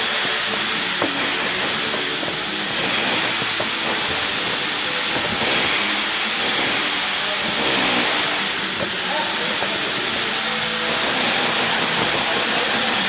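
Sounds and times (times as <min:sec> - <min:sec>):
loud steady hiss: 0:00.0 - 0:13.0.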